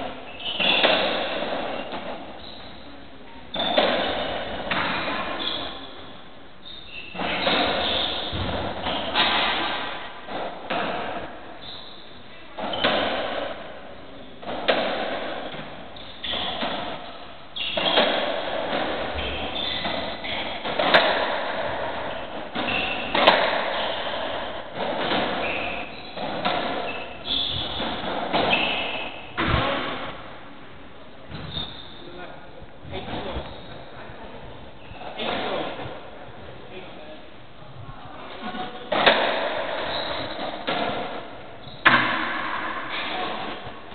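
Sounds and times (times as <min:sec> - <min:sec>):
shoe squeaks on wooden floor: 0:00.0 - 0:02.9, 0:03.5 - 0:09.2, 0:11.6 - 0:13.1, 0:16.0 - 0:16.7, 0:17.6 - 0:18.4, 0:19.1 - 0:20.9, 0:21.7 - 0:29.4, 0:31.3 - 0:32.1, 0:33.2 - 0:34.0, 0:39.6 - 0:40.7, 0:41.6 - 0:41.9
ball hitting walls: 0:07.2 - 0:11.4, 0:14.4 - 0:30.3, 0:38.4 - 0:43.9
ball struck by rackets: 0:07.2 - 0:11.4, 0:14.4 - 0:30.2, 0:38.5 - 0:43.7.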